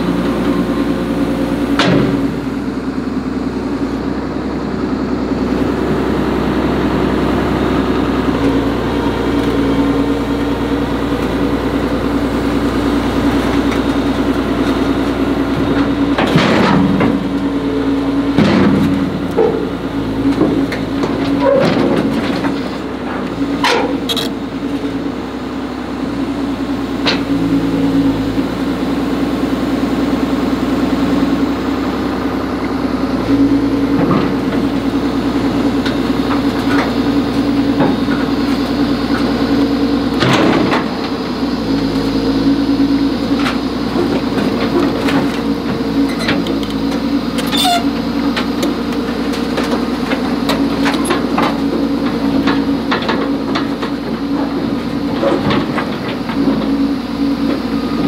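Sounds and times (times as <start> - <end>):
excavator diesel engine running: 0.0 - 58.0
metal clanks and knocks: 15.7 - 17.5, 18.3 - 24.4.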